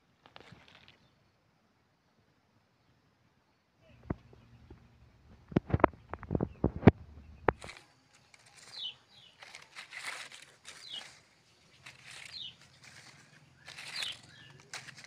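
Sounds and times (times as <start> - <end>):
dry leaves rustling: 7.5 - 15.0
bird falling chirp: 8.4 - 15.0.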